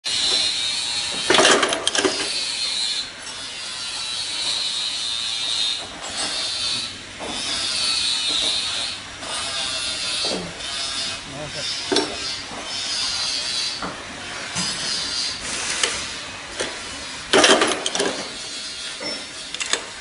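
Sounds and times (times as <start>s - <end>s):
riveting machine whirring hiss: 6.2s - 19.9s
knocks and rattling: 17.3s - 18.3s.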